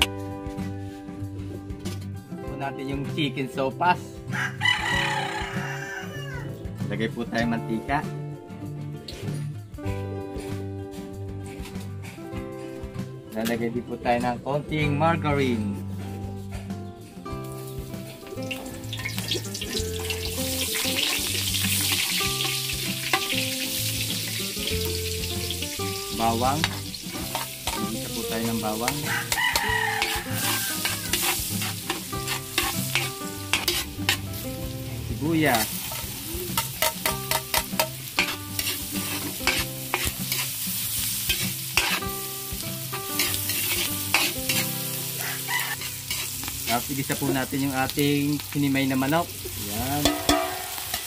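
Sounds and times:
soft background music: 0.0s - 51.0s
fat sizzling in a wok: 16.5s - 51.0s
metal spatula scraping a pan: 26.2s - 28.0s, 28.7s - 34.4s, 35.5s - 42.2s, 43.1s - 46.8s, 50.0s - 51.0s
spatula tapping wok: 26.6s - 27.9s, 28.8s - 34.2s, 35.8s - 42.0s, 50.0s - 51.0s.

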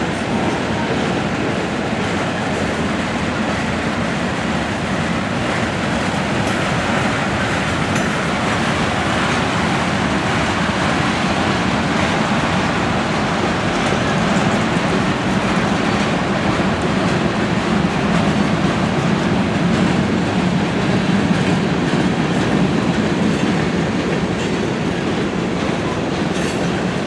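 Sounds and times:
train wheels rumbling on rails: 0.0s - 27.0s.

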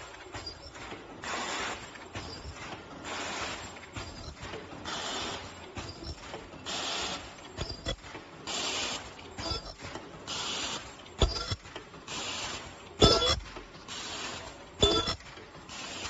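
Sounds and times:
mechanical clicks and knocks: 9.2s - 10.3s, 11.0s - 12.1s, 12.9s - 15.7s
machine short hiss: 14.0s - 15.2s.

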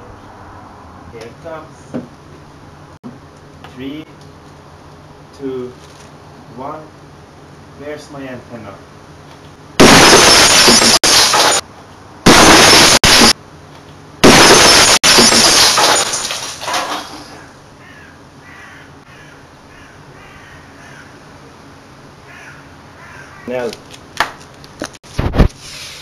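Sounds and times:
glass shattering blasts: 9.8s - 11.6s, 12.3s - 13.4s, 14.2s - 17.1s
crows cawing: 17.4s - 21.3s, 22.2s - 23.7s.

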